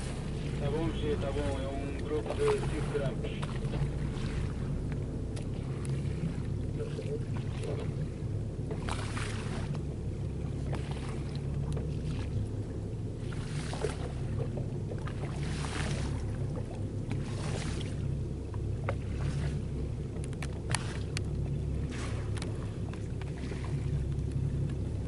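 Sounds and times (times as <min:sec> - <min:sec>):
boat engine humming: 0:00.0 - 0:25.0.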